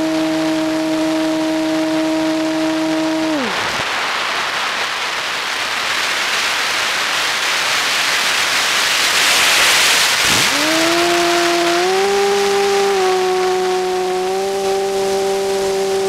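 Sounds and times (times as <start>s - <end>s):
model airplane motor whine: 0.0s - 3.6s, 10.2s - 16.0s
wind noise: 9.2s - 16.0s.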